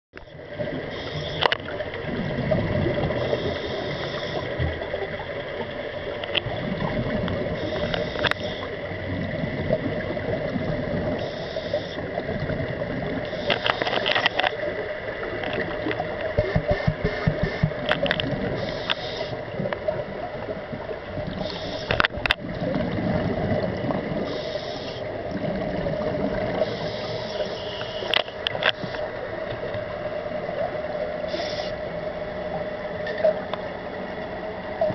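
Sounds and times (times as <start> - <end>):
steady hum: 0.2 - 34.9
regulator inhalation hiss: 0.9 - 1.4, 3.2 - 4.6, 7.6 - 8.8, 11.2 - 12.0, 18.6 - 19.4, 21.4 - 22.0, 24.3 - 25.1, 26.6 - 28.1, 31.3 - 31.9
sharp clicks: 15.5 - 19.1.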